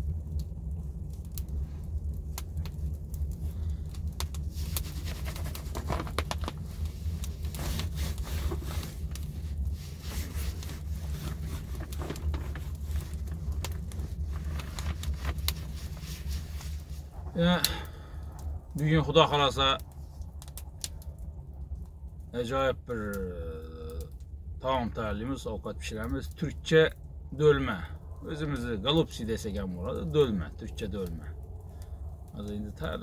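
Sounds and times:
light scrapes and crackles: 0.0s - 22.0s
steady low rumble: 0.0s - 33.0s
hands rubbing plastic tablecloth: 4.5s - 17.1s.

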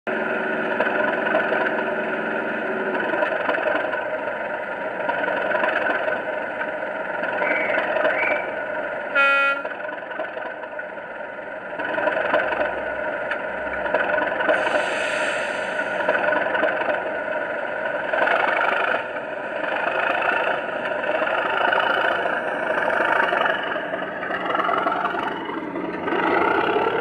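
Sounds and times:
diesel locomotive engine running: 0.1s - 27.0s
locomotive horn toot: 9.1s - 9.8s.

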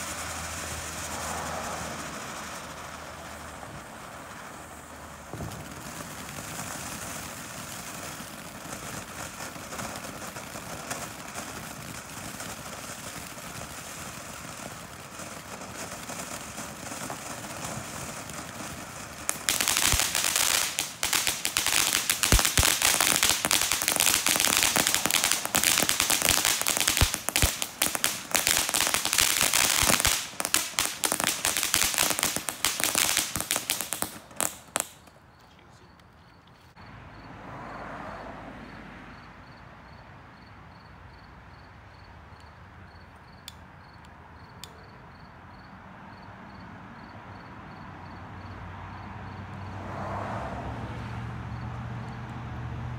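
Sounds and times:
firework hissing: 0.0s - 35.1s
firework crackling and popping: 0.0s - 35.4s.

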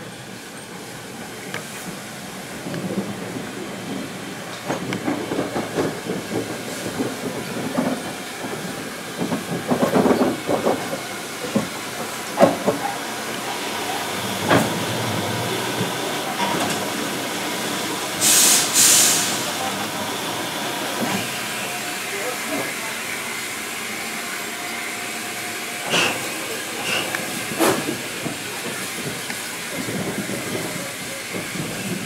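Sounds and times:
steam locomotive wheels clanking: 1.6s - 20.0s, 25.5s - 32.0s
steam hissing: 12.8s - 32.0s.

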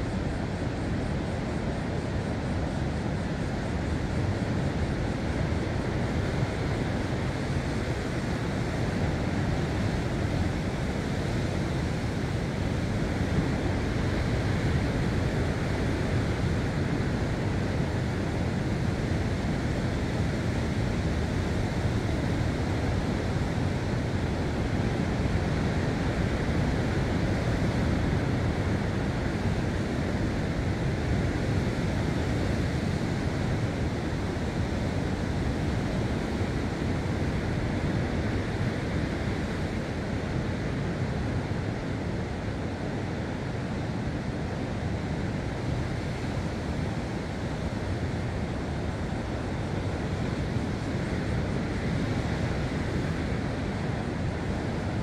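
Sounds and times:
wind: 0.0s - 55.0s
sea surf on rocky coast: 0.2s - 55.0s.

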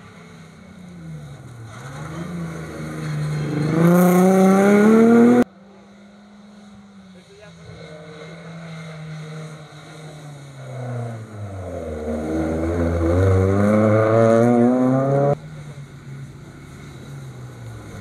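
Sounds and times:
rally car engine accelerating: 0.0s - 18.0s.

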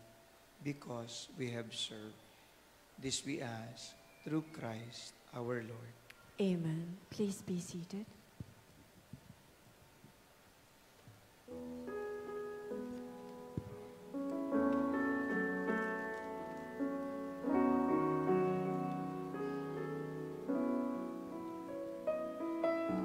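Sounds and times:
keyboard playing slow chords: 11.5s - 23.0s.

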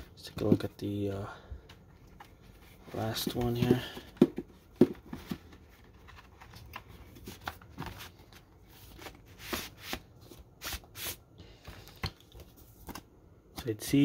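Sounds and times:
paper rustling and scraping: 5.1s - 11.8s.

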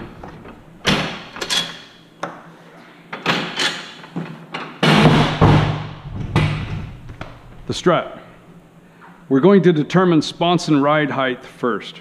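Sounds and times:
folding table knocks and clatters: 3.2s - 7.0s.

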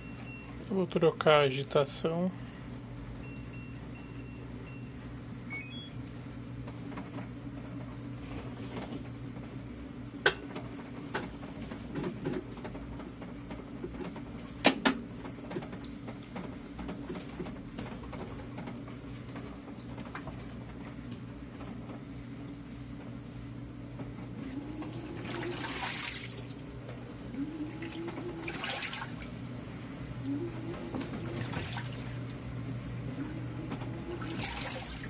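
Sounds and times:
washing machine control panel beeping: 0.0s - 0.9s, 3.2s - 6.1s, 24.1s - 35.0s
washing machine low hum: 0.0s - 35.0s.

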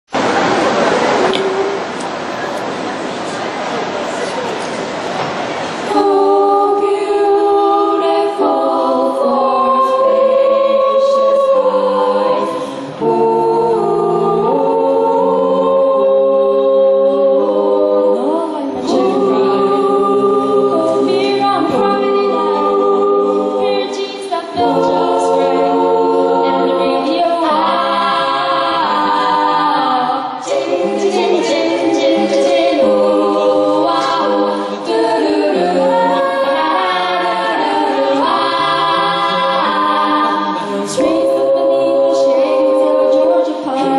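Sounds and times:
a cappella group singing harmonies: 4.2s - 43.9s.

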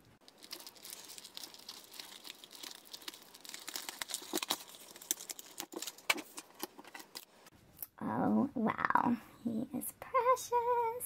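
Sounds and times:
plastic packaging crinkling: 0.1s - 7.5s.

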